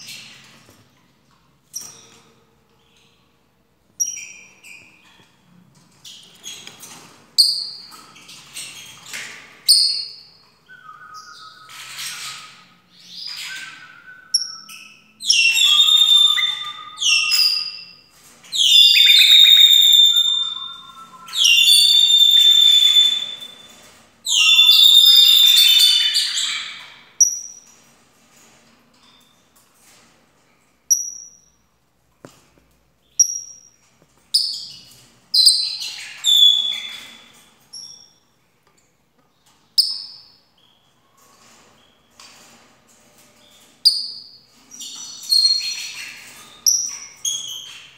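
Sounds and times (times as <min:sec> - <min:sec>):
parrot whistling song: 0:10.7 - 0:12.4, 0:13.3 - 0:17.7, 0:18.6 - 0:23.6, 0:24.3 - 0:26.8, 0:35.4 - 0:37.1.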